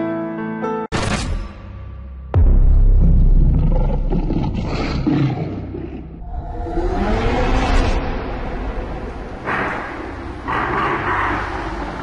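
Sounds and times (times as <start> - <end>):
deep roar rising in pitch: 3.2 - 9.5
heavy low rumble: 6.1 - 10.5.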